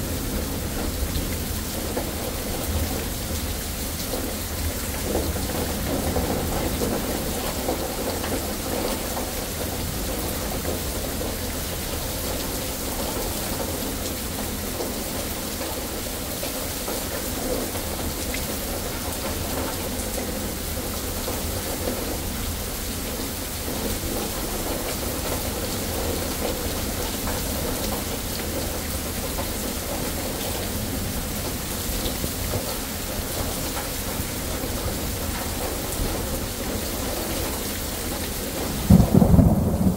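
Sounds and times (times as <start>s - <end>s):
rain pouring on pavement: 0.0s - 39.9s
low thunder rumble: 38.7s - 39.9s.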